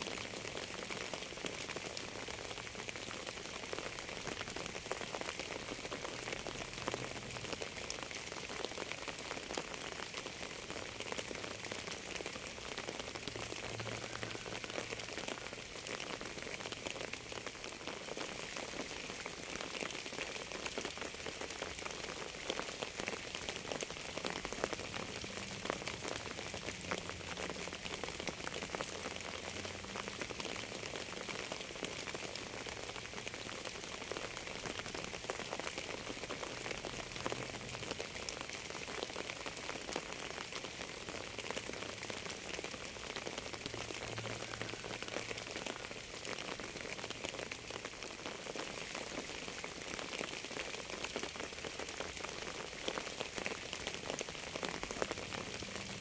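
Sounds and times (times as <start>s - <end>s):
rain patter: 0.0s - 56.0s.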